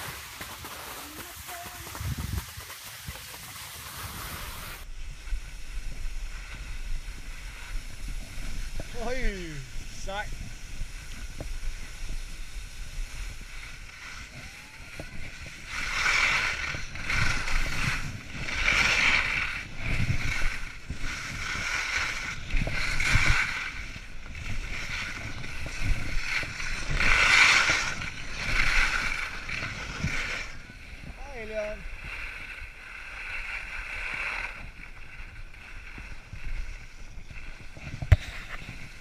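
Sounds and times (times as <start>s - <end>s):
skis carving through snow: 0.0s - 39.0s.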